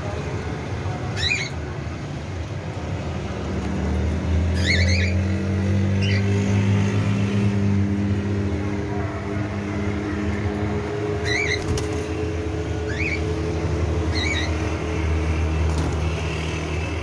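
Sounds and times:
parrots warbling chirps: 0:01.2 - 0:01.6, 0:04.5 - 0:05.2, 0:12.9 - 0:13.3, 0:14.1 - 0:14.6.

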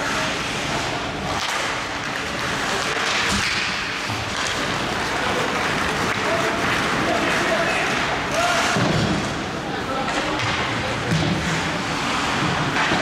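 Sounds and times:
skate blades scraping ice: 0:00.0 - 0:09.5, 0:11.4 - 0:13.0
hockey sticks clacking: 0:00.0 - 0:13.0.

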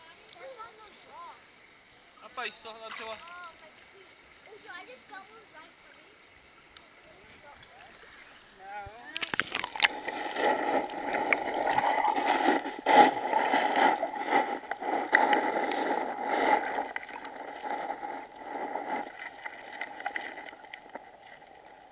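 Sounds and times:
underwater creek bubbling and rushing: 0:02.8 - 0:21.9
sharp underwater clicks and knocks: 0:08.9 - 0:21.6.

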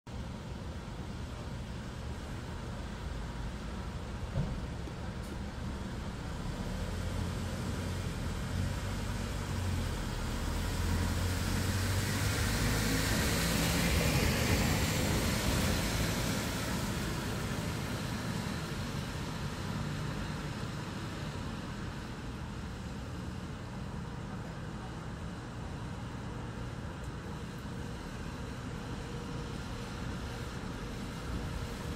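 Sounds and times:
low hum of traffic: 0:00.1 - 0:31.9
vehicle passing by: 0:06.6 - 0:20.9.

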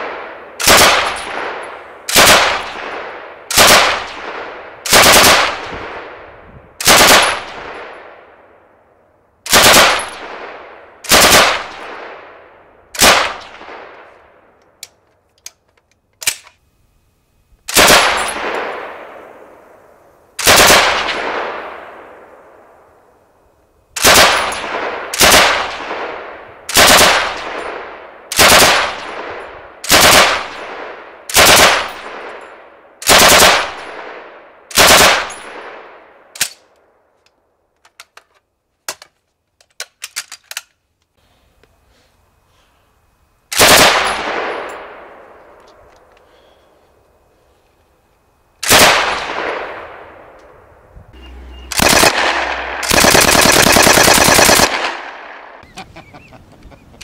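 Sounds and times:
machine gun bursts with echo: 0:00.0 - 0:06.0, 0:06.8 - 0:07.9, 0:09.5 - 0:12.0, 0:17.7 - 0:19.2, 0:20.4 - 0:21.8, 0:24.0 - 0:32.3, 0:33.0 - 0:35.7, 0:43.5 - 0:44.7, 0:48.6 - 0:50.1, 0:51.2 - 0:55.6.

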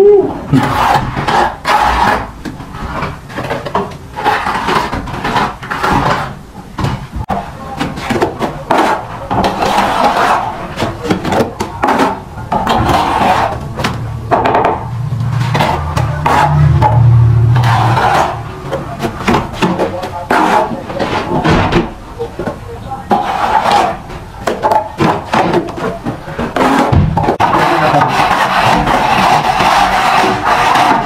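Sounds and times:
low steady hum: 0:06.4 - 0:23.2.

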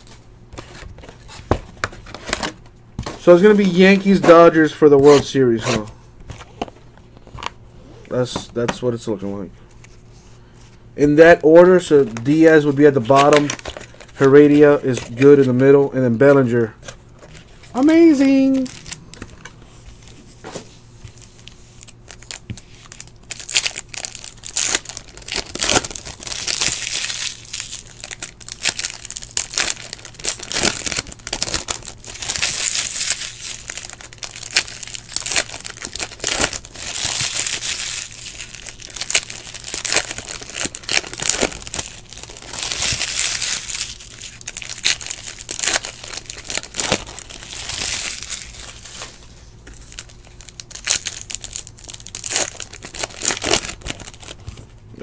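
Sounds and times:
foil wrappers crinkling: 0:11.2 - 0:15.8, 0:17.2 - 0:20.2, 0:20.8 - 0:54.7
cards being handled: 0:12.0 - 0:15.6.

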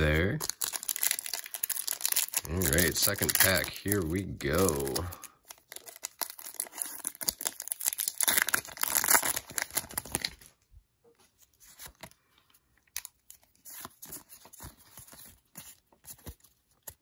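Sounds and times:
cards rustling: 0:00.0 - 0:10.6, 0:11.2 - 0:17.0
foil wrapper tearing and crinkling: 0:00.1 - 0:10.5.

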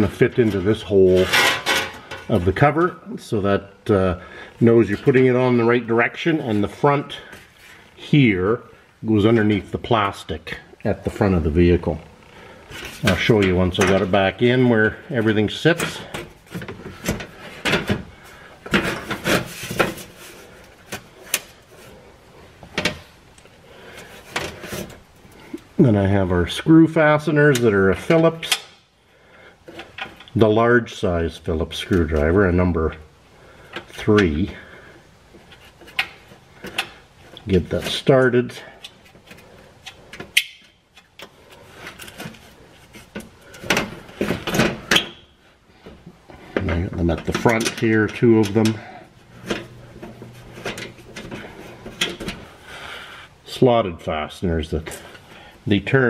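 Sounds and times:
plastic shield knocking and scraping: 0:16.2 - 0:21.2.

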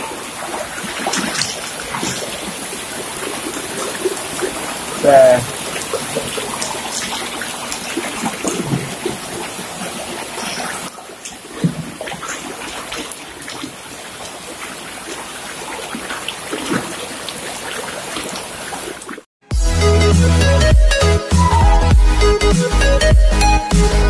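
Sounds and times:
heavy rain pouring: 0:00.0 - 0:19.2
water splashing and dripping: 0:00.0 - 0:19.3.

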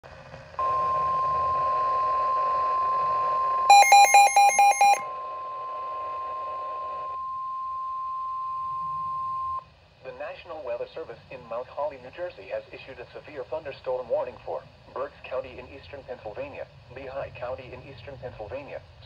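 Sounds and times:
quick shrill beeps: 0:03.7 - 0:05.0
steady alarm tone: 0:03.7 - 0:05.0.

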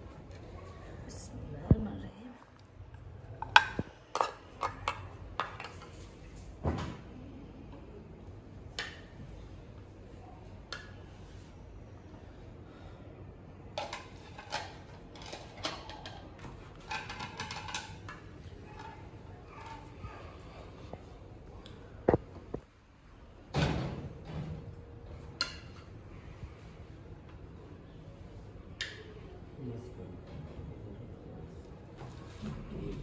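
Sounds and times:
plates and spoon clattering: 0:16.8 - 0:18.2.

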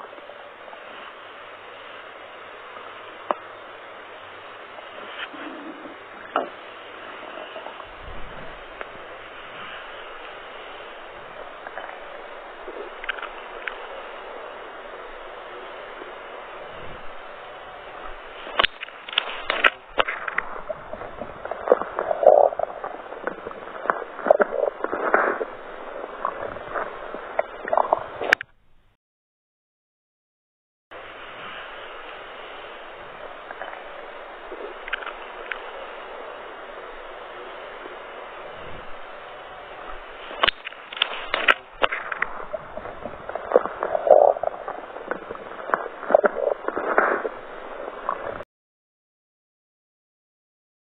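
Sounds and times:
stomach gurgling: 0:04.6 - 0:28.5, 0:32.7 - 0:48.4
clicks and crackles: 0:07.2 - 0:16.2, 0:18.0 - 0:28.6, 0:33.2 - 0:36.9, 0:39.7 - 0:48.4
sharp little clicks: 0:40.3 - 0:42.4.

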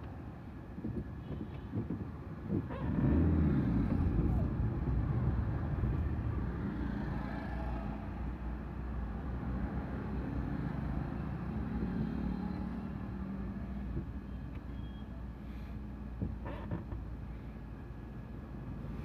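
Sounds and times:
idling engines rumbling: 0:00.0 - 0:06.8, 0:13.0 - 0:19.0.

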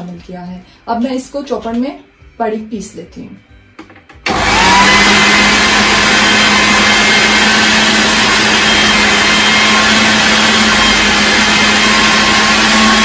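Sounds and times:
food processor motor running: 0:04.3 - 0:13.0.

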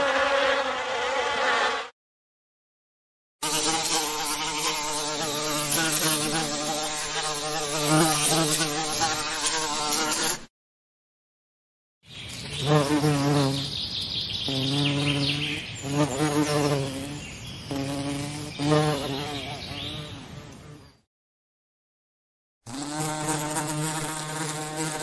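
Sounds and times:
bee buzzing: 0:03.4 - 0:10.5, 0:12.5 - 0:13.8, 0:14.5 - 0:21.0, 0:22.7 - 0:25.0.

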